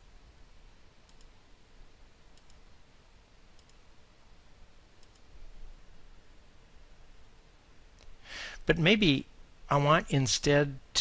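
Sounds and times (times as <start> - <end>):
low steady hiss: 0.0 - 11.0
computer mouse clicks: 1.0 - 1.4, 2.3 - 2.6, 3.6 - 3.8, 5.0 - 5.3.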